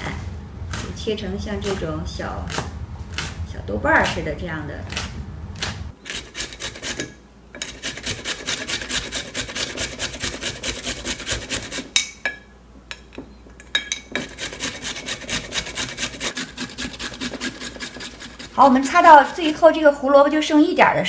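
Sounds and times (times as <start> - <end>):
carrot grating on metal grater: 4.0 - 11.9, 14.2 - 19.8.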